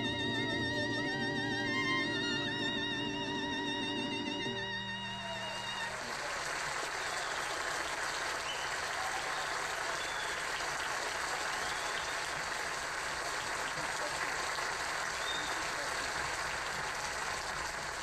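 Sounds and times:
violin tune: 0:00.0 - 0:06.1
audience applause: 0:05.0 - 0:18.0.

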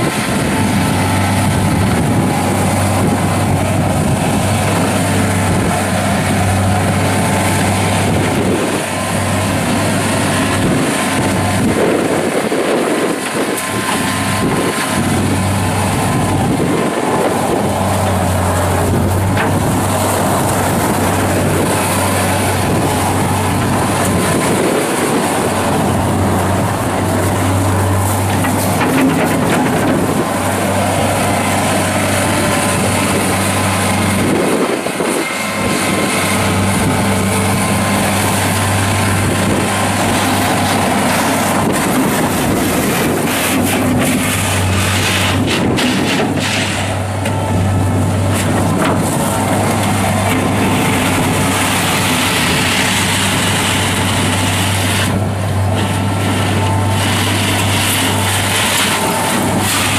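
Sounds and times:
diesel loader engine running: 0:00.0 - 0:59.9
wheels on gravel: 0:00.0 - 0:59.9.

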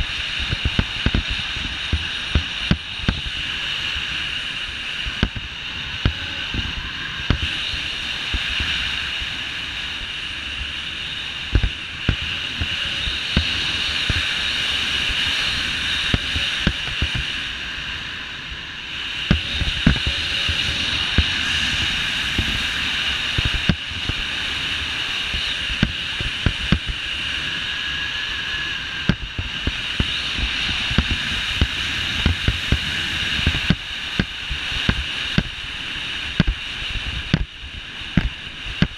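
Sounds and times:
wind rushing over microphone: 0:00.0 - 0:38.9
low buffeting thumps: 0:19.3 - 0:22.6, 0:25.3 - 0:27.1, 0:29.0 - 0:38.9.

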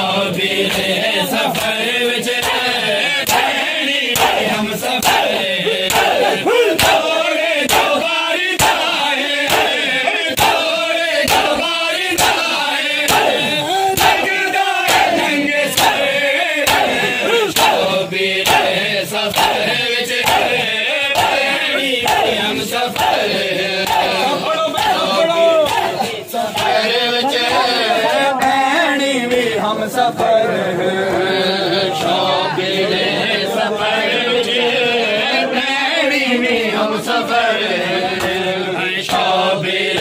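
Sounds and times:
men chanting: 0:00.0 - 0:40.0
hands slapping chests: 0:02.4 - 0:08.0, 0:08.6 - 0:11.6, 0:12.2 - 0:12.5, 0:13.1 - 0:17.8, 0:18.4 - 0:19.6, 0:20.2 - 0:20.6, 0:21.2 - 0:25.0, 0:25.6 - 0:26.8.

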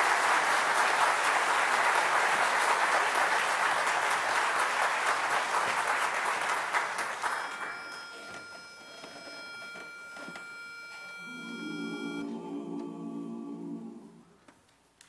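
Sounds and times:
audience applauding: 0:00.0 - 0:08.2
steady high tone: 0:07.4 - 0:14.4.

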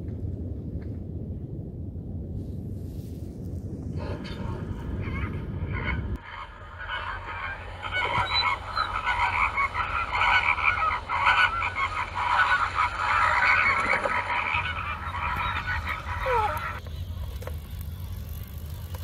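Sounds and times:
flamingos honking: 0:04.0 - 0:17.4.

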